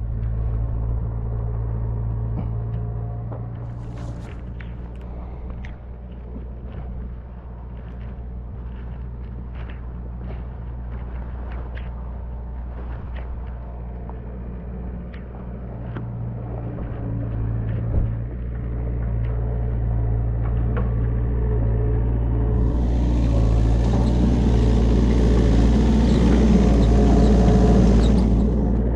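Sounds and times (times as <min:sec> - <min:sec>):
diesel engine humming: 0:17.0 - 0:28.9.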